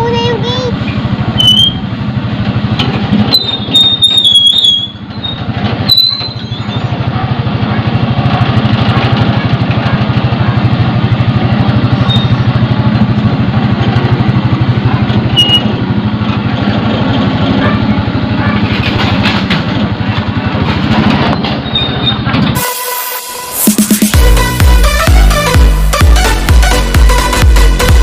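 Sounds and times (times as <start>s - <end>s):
concrete mixer engine running: 0.0s - 28.0s
high squeaky chirps: 1.4s - 1.9s, 3.3s - 7.0s, 12.0s - 12.5s.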